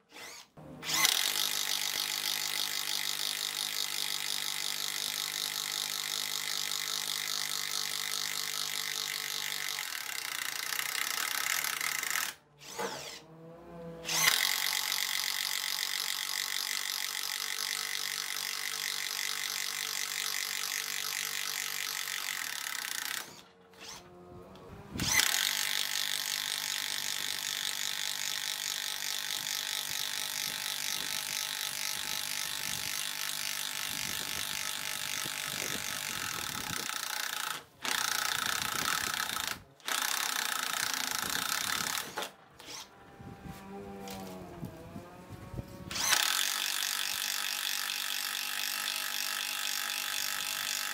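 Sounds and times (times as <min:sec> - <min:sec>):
impact driver rattling: 0:14.0 - 0:24.1, 0:24.9 - 0:42.9.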